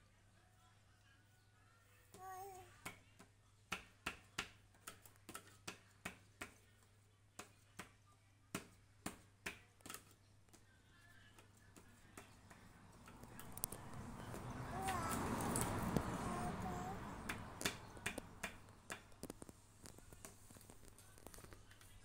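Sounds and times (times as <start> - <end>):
pen tapping on paper: 11.4 - 20.6
child's vocal sound: 14.5 - 17.4.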